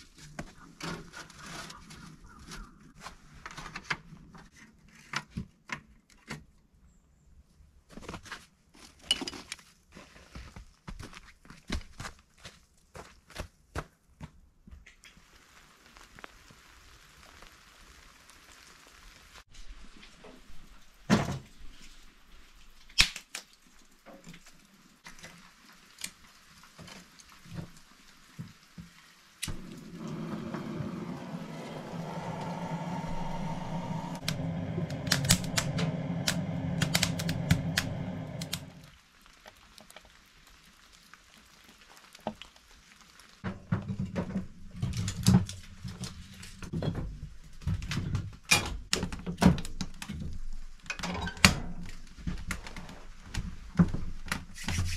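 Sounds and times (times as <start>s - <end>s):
gas torch hissing: 29.5s - 38.9s.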